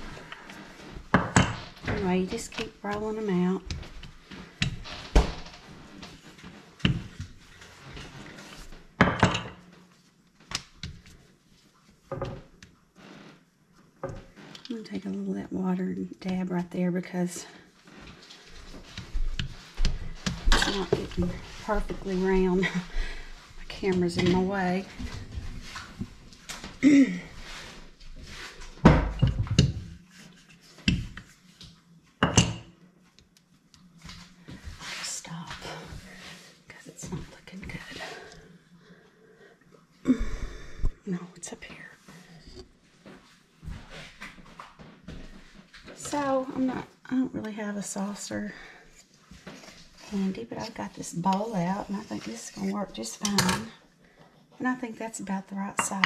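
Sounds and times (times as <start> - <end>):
quiet rustling: 33.0 - 39.0.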